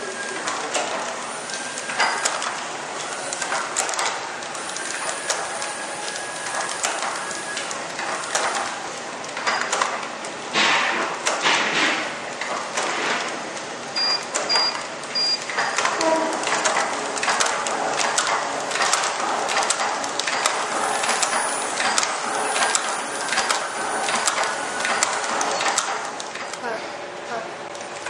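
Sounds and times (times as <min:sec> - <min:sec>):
packaging machine clattering: 0:00.0 - 0:26.6
short high electronic beeps: 0:14.0 - 0:15.4.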